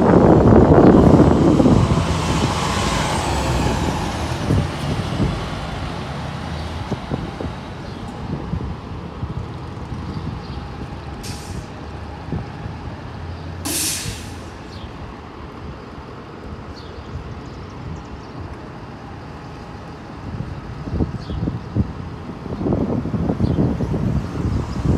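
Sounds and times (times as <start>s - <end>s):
low rumble of engines and traffic: 0.0s - 24.9s
bus air brakes hissing: 11.2s - 11.8s, 13.6s - 14.9s.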